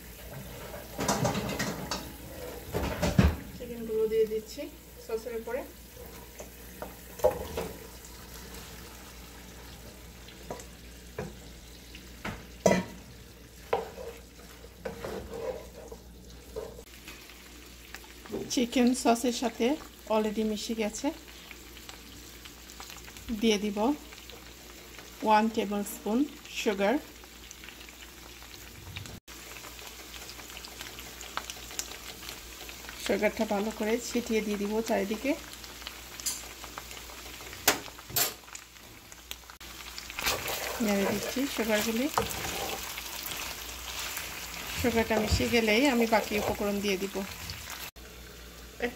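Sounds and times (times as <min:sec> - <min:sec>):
sauce sizzling: 0:00.0 - 0:48.9
wooden spatula scraping pan: 0:00.2 - 0:03.1, 0:13.6 - 0:16.9, 0:40.2 - 0:47.6.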